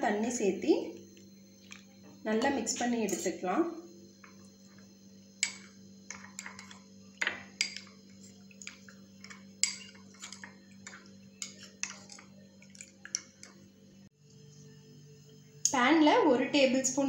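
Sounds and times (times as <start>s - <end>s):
spoon clinking against glass bowl: 5.4s - 13.6s.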